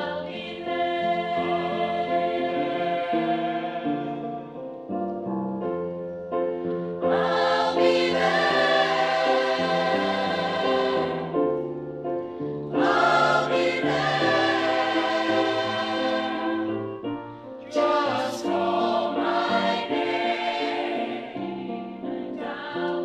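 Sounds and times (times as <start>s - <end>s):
women's choir singing in harmony: 0.0s - 4.8s, 7.0s - 23.0s.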